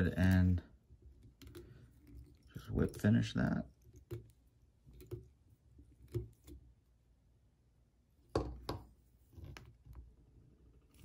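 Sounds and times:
light clicks and taps at vise: 1.1 - 3.0.

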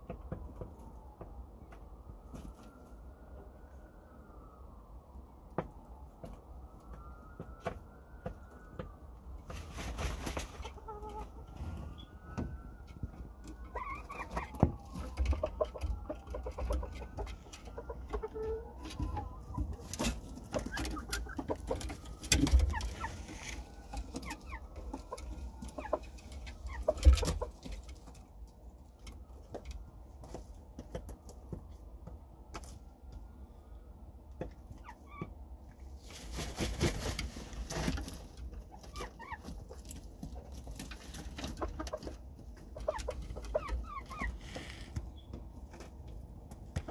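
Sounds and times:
hens clucking and calling: 10.2 - 11.6, 13.4 - 28.1, 38.6 - 45.1
birds scratching on wooden perch: 13.5 - 28.1, 42.8 - 45.1.

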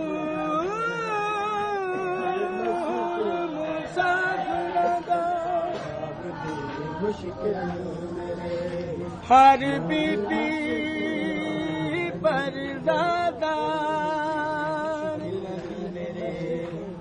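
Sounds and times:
man singing lament: 0.0 - 17.0.

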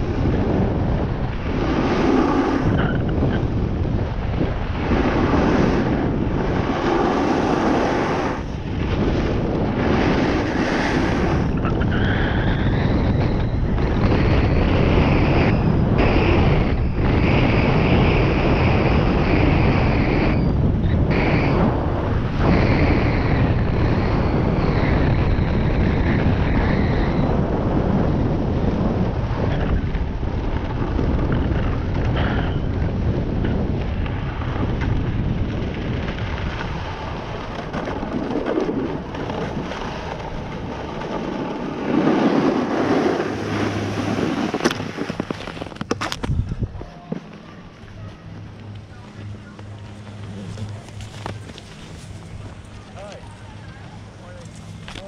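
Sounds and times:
wind rushing over microphone: 0.0 - 55.0
ski edges scraping snow: 1.4 - 2.8, 4.8 - 11.6, 36.2 - 46.5, 48.9 - 53.5.

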